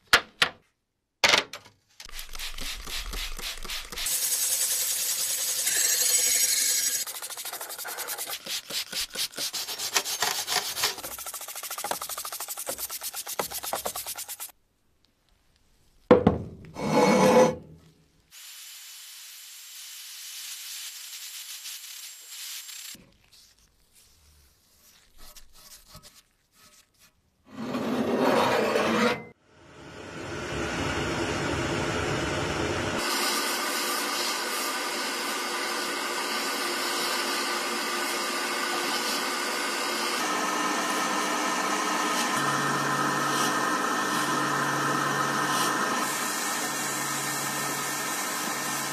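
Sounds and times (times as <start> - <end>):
brush scrubbing metal: 2.0 - 14.5, 23.0 - 27.2
sandblaster hissing: 2.2 - 13.1, 18.3 - 23.0, 32.9 - 40.2.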